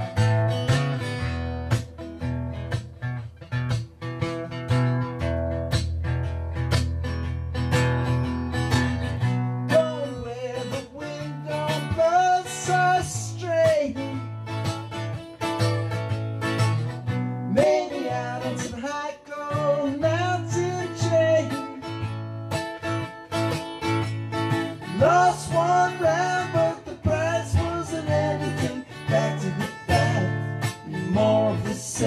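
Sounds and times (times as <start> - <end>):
solo guitar instrumental: 0.0 - 32.0.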